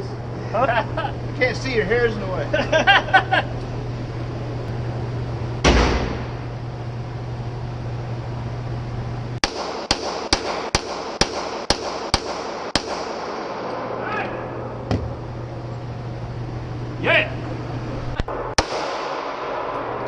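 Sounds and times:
handgun shots indoors: 5.6s - 6.4s, 9.4s - 13.9s, 18.3s - 20.0s.

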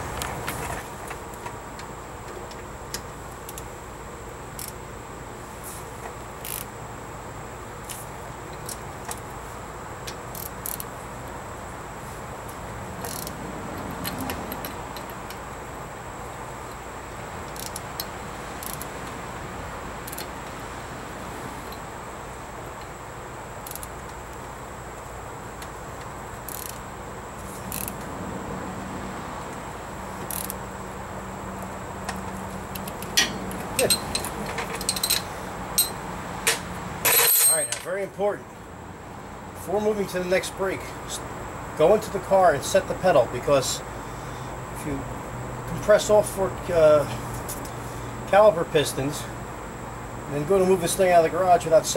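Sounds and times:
background hum: 0.0s - 51.9s
ratchet metallic clicks: 4.5s - 4.8s, 6.4s - 6.7s, 10.1s - 10.9s, 13.0s - 13.4s, 17.4s - 18.9s, 20.0s - 20.3s, 23.6s - 24.2s, 26.4s - 26.9s, 27.6s - 28.0s, 30.2s - 30.6s, 32.0s - 37.9s.

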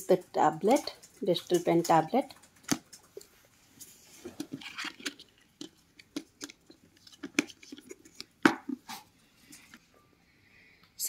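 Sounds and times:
cardboard box rustling: 3.9s - 9.8s.

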